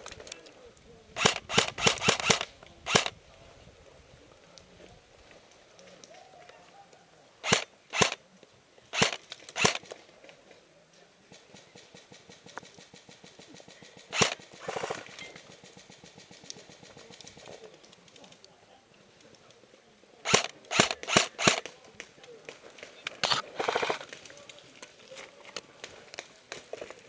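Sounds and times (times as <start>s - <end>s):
airsoft rifle shots: 1.2s - 3.2s, 7.4s - 8.2s, 8.9s - 10.0s, 11.3s - 17.4s, 20.2s - 21.8s.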